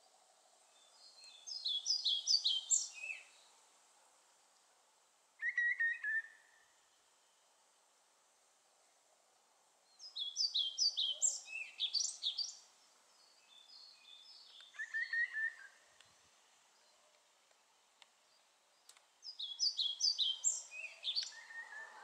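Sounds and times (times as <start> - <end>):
bird singing: 0.7 - 3.5, 5.4 - 7.4, 9.9 - 17.1, 18.2 - 22.0.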